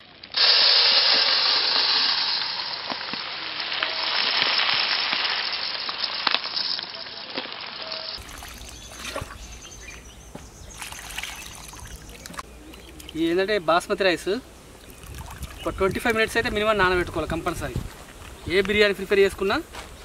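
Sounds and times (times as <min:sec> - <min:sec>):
rice pouring into metal bowl: 0:00.4 - 0:08.8
faint water sounds: 0:06.8 - 0:17.3.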